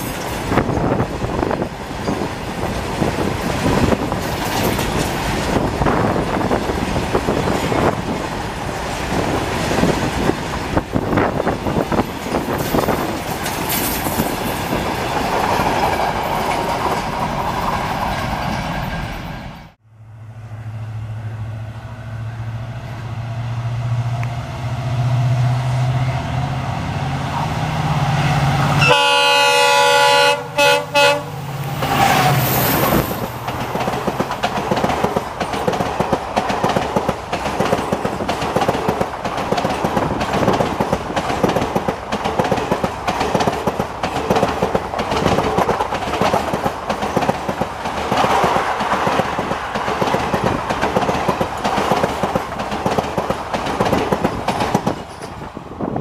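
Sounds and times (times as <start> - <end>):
wheels clacking over rail joints: 0.0 - 19.4, 31.6 - 55.5
diesel locomotive humming: 0.0 - 56.0
passing train rushing noise: 0.0 - 56.0
multi-tone train horn: 28.7 - 32.4.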